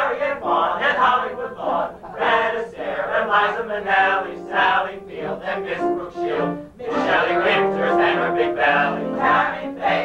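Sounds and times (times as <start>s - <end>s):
ensemble singing in chorus: 0.0s - 10.0s.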